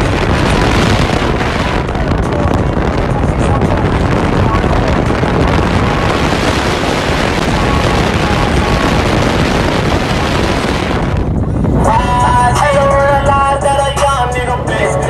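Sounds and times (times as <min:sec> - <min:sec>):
wind rushing on microphone: 0:00.0 - 0:13.8
truck driving at speed: 0:00.0 - 0:15.0.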